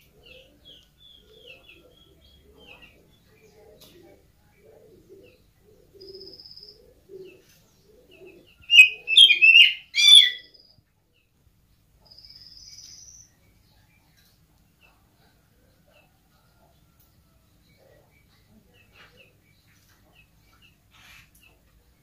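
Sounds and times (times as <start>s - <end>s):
bird harsh wavering calls: 8.7s - 10.5s
bird high buzzy trills: 8.7s - 10.5s.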